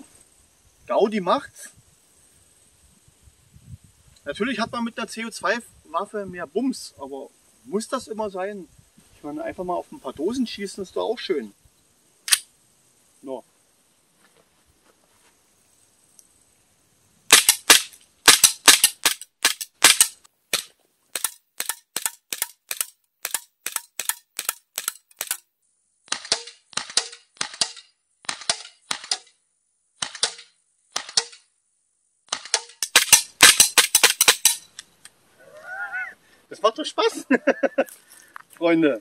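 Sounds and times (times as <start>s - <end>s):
airsoft pistol firing: 17.3s - 25.4s, 26.1s - 29.3s, 32.3s - 34.6s.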